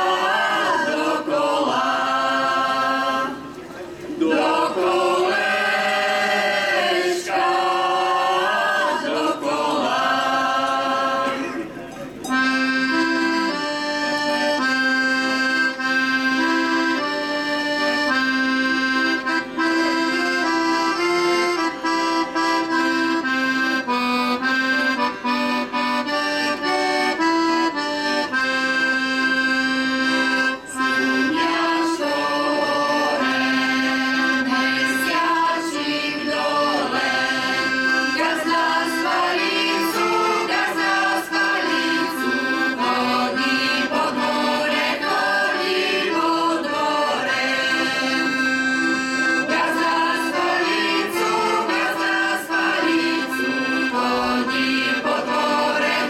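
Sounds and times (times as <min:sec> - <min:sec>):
women's choir singing: 0:00.0 - 0:03.5, 0:04.2 - 0:11.6, 0:30.7 - 0:56.0
accordion playing: 0:00.0 - 0:56.0.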